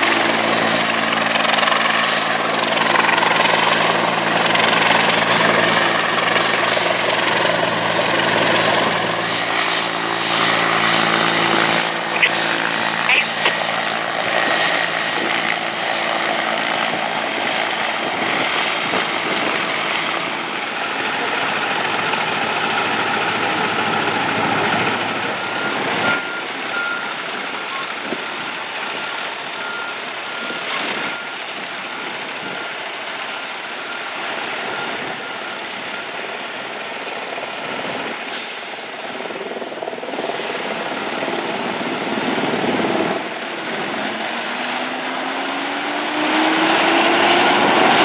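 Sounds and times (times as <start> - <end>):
helicopter hovering: 0.0 - 38.3, 39.0 - 48.0
diesel engine running: 0.0 - 48.0
truck engine running: 0.0 - 48.0
high repeating beeps: 7.5 - 14.9.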